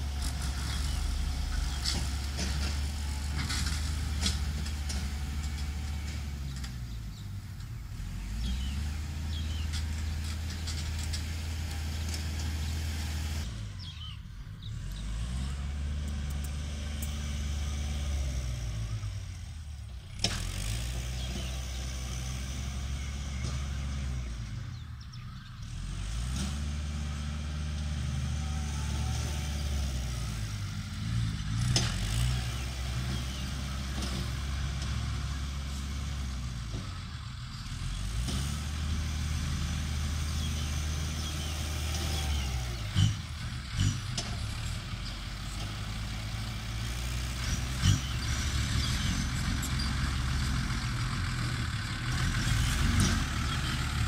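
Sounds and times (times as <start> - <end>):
diesel truck engine running: 0.0 - 54.0.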